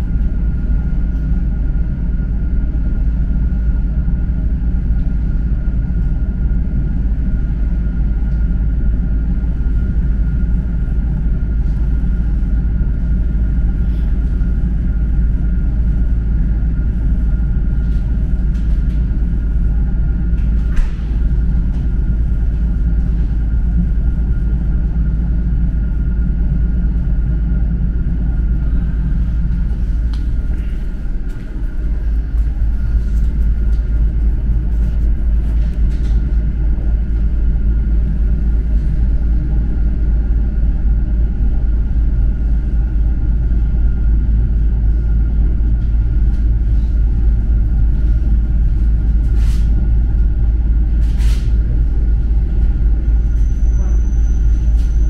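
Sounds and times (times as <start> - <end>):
train wheels rumbling on rails: 42.4 - 55.0.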